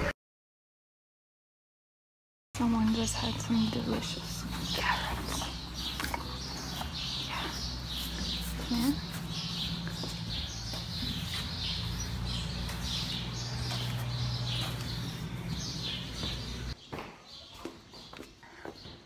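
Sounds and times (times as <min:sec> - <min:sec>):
steady low hum: 0:02.6 - 0:16.8.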